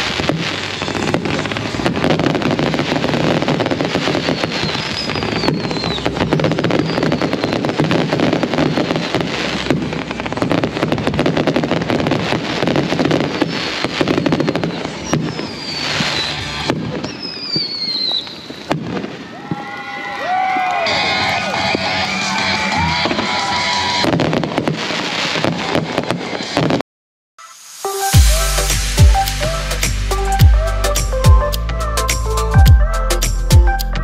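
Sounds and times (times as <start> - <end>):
fireworks crackling and banging: 0.0 - 26.8, 27.4 - 34.0
firework whistles falling in pitch: 2.1 - 8.9, 12.7 - 26.8, 27.4 - 32.3.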